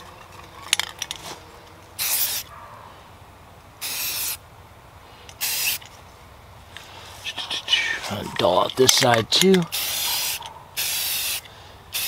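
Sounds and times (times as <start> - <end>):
spray paint can hissing: 2.0 - 2.5, 3.8 - 4.4, 5.4 - 5.9, 9.7 - 12.0.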